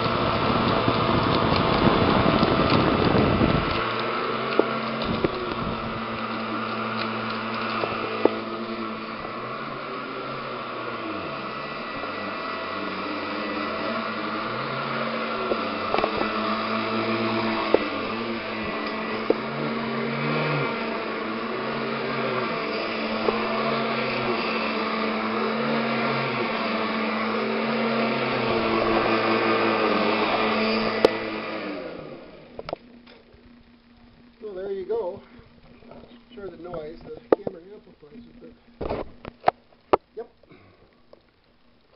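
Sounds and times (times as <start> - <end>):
vacuum cleaner humming: 0.0 - 39.6.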